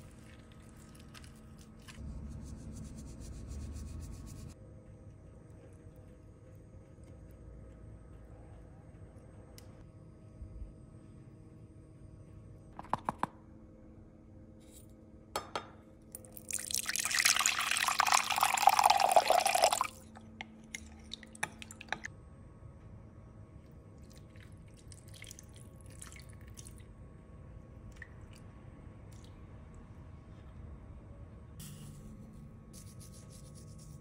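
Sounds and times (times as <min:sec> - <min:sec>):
liquid pouring into glass cup: 0:16.2 - 0:20.0.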